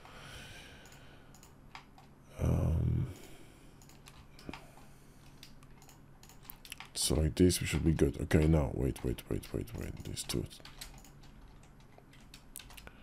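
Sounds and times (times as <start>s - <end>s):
short low vocal sound: 2.3s - 3.2s.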